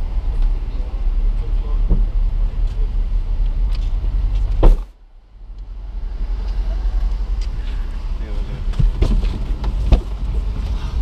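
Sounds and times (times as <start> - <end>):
car engine idling: 0.0 - 11.0
sharp thump: 4.6 - 4.9.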